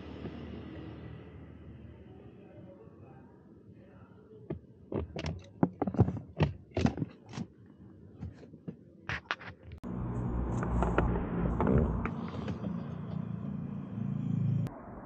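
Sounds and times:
low hum and rumble: 9.8s - 15.0s.

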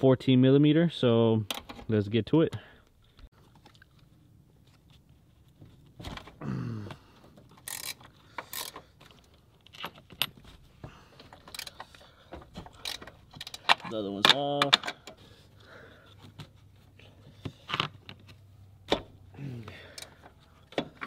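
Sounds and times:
ratcheting wrench clicking: 7.6s - 8.8s, 11.4s - 12.0s.

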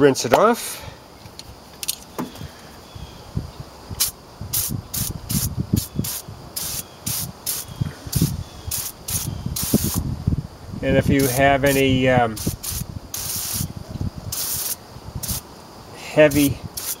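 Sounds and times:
aerosol can hissing spurts: 4.0s - 10.0s, 11.2s - 11.8s, 12.4s - 13.7s, 14.3s - 15.4s, 16.3s - 17.0s.

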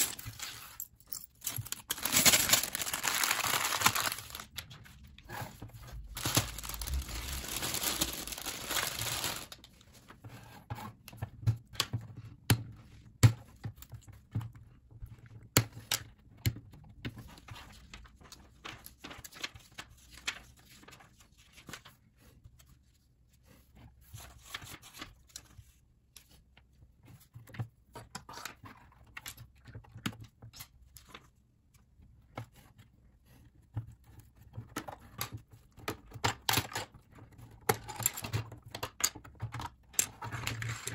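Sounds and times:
dense rustling: 6.1s - 9.6s.

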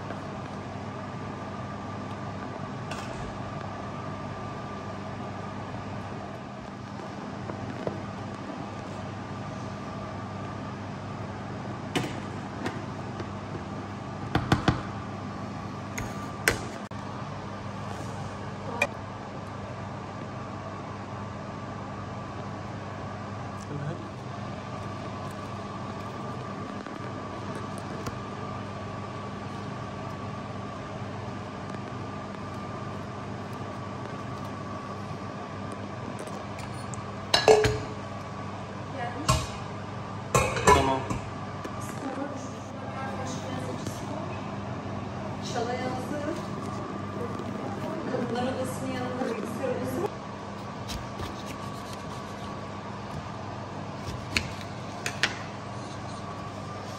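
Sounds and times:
background hum: 0.0s - 56.9s
dishware clattering: 40.4s - 41.1s.

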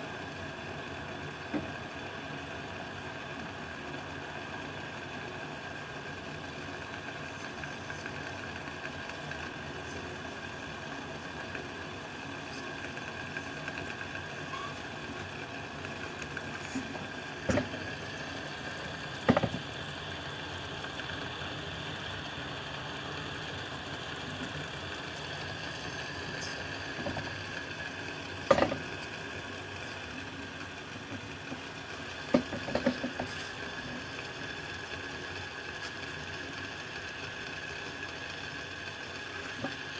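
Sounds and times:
stove flame hissing: 0.0s - 39.9s
sharp knocks and clicks: 19.2s - 19.6s.

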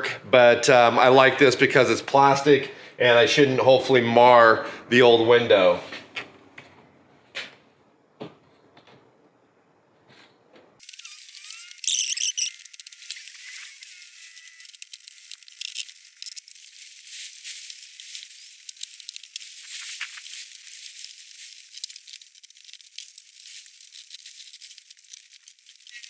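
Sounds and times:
sealant crackling and tearing: 10.8s - 26.0s.

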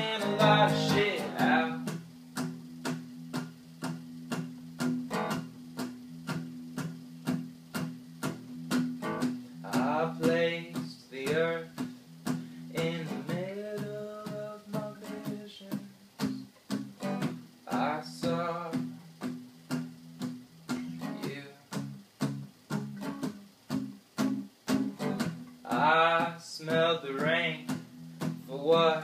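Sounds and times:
person singing: 0.0s - 2.0s, 9.6s - 11.9s, 12.7s - 16.4s, 17.7s - 19.0s
acoustic guitar strumming: 0.0s - 29.0s.

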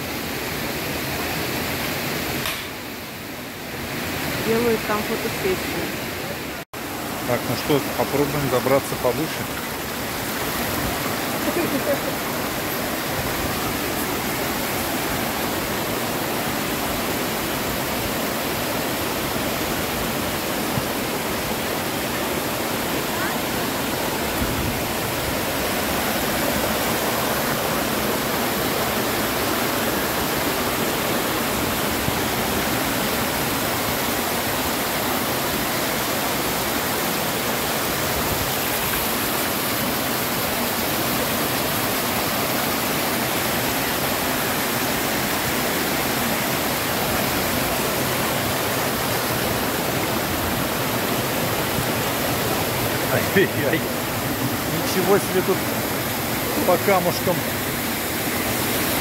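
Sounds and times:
waterfall rushing: 0.0s - 59.0s.

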